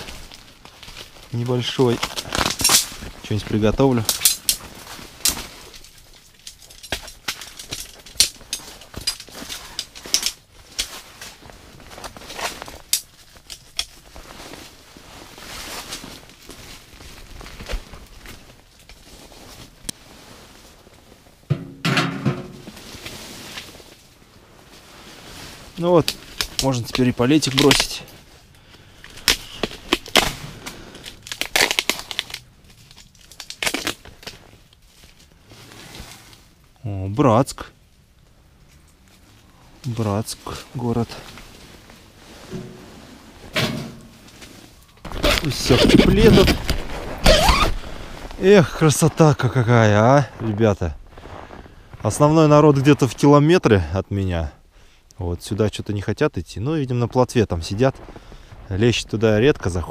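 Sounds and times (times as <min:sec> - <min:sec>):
plastic wrap tearing and crinkling: 0:00.0 - 0:03.4, 0:29.1 - 0:34.6, 0:45.0 - 0:47.9.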